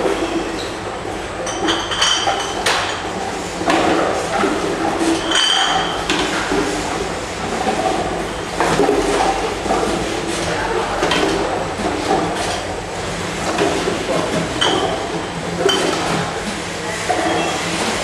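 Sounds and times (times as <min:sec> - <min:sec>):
glass bottles clinking: 0:01.4 - 0:03.0, 0:05.2 - 0:06.0.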